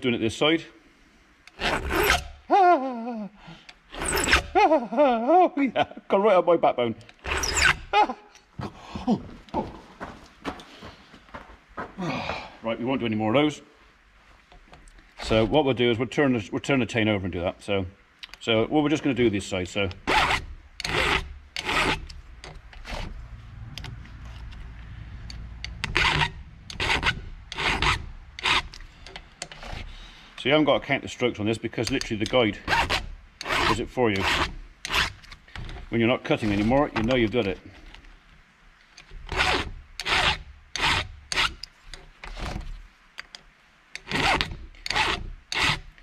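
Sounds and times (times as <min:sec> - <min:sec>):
file rasping on chain: 0:01.6 - 0:02.3, 0:03.9 - 0:04.5, 0:07.2 - 0:07.9, 0:20.1 - 0:22.2, 0:25.7 - 0:28.8, 0:29.4 - 0:29.9, 0:32.1 - 0:35.3, 0:39.3 - 0:41.6, 0:44.0 - 0:46.0.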